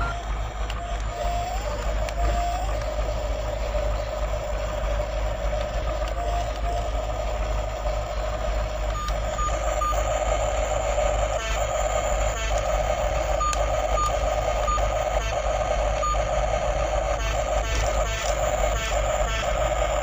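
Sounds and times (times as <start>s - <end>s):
toy raspy engine-like buzz: 0.0s - 20.0s.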